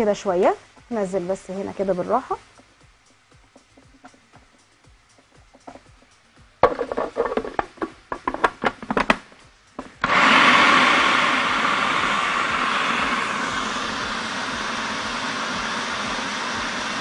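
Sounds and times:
plastic bowl clicks and knocks: 6.6 - 9.2
food processor motor grinding: 10.0 - 17.0.

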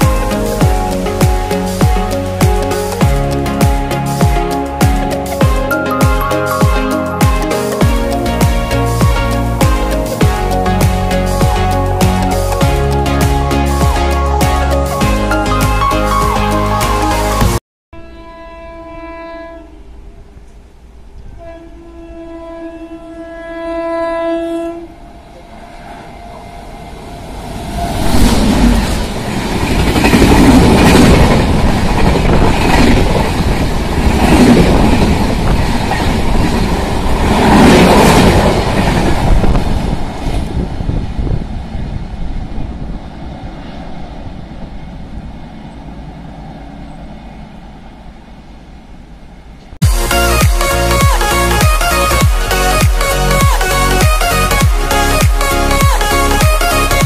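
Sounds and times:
train rushing past: 0.0 - 17.6, 24.8 - 57.0
locomotive horn: 16.2 - 19.9, 21.3 - 25.6.

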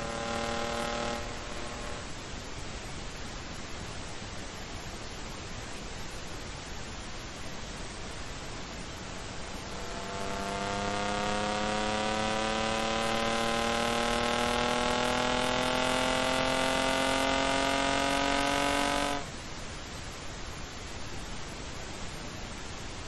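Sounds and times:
car engine revving hard: 0.0 - 2.1, 9.4 - 19.3
steady hiss: 0.0 - 23.0.

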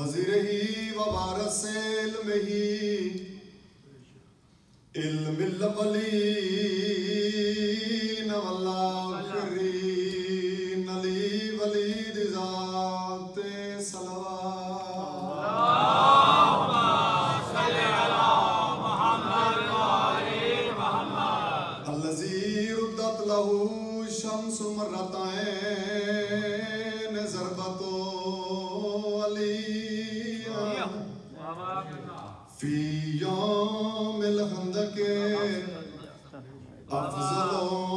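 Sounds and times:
man chanting: 5.0 - 16.0, 20.2 - 37.9
many voices chanting: 15.0 - 22.5.

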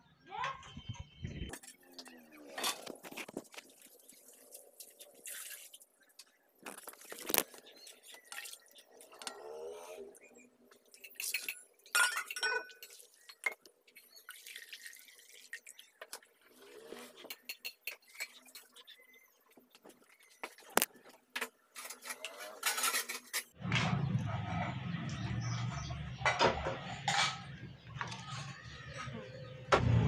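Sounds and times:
water sloshing in steel bowl: 1.5 - 9.7.

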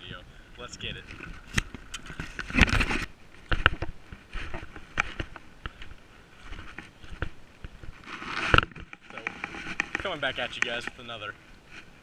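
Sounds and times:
steps on loose stones: 0.8 - 11.3
rustling: 0.9 - 12.0
camera handling noise: 1.0 - 5.9, 6.5 - 11.0.

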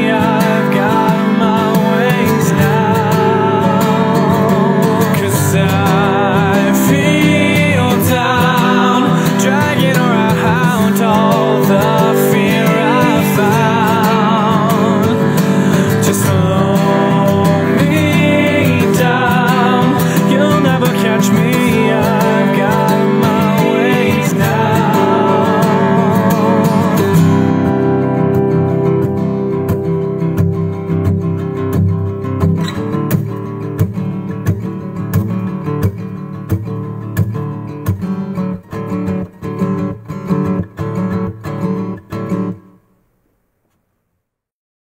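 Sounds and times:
held melody line: 0.0 - 35.3
acoustic guitar strumming: 0.0 - 43.4.

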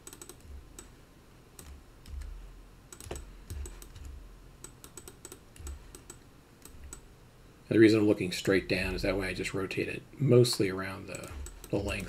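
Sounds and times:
keyboard and mouse clicks: 0.0 - 1.0, 1.6 - 7.1, 10.5 - 12.0.

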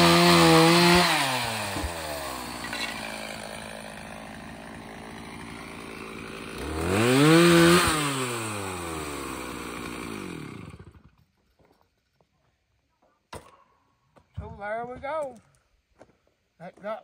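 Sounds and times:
chainsaw idling and revving: 0.0 - 11.3.

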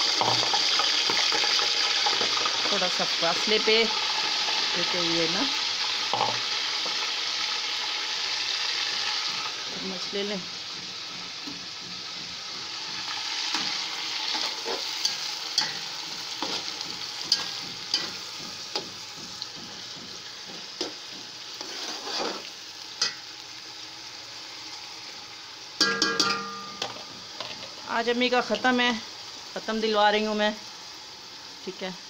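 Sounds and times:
onions sizzling in hot oil: 0.0 - 32.0
spoon scraping a steel pot: 21.6 - 22.5.

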